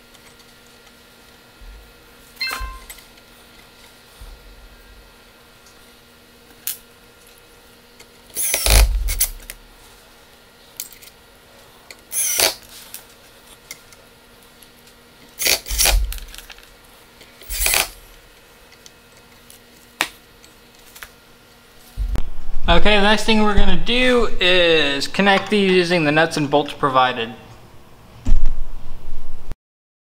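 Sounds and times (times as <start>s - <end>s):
cordless drill running: 8.4s - 9.6s, 12.1s - 12.6s, 15.4s - 16.4s, 17.4s - 18.0s.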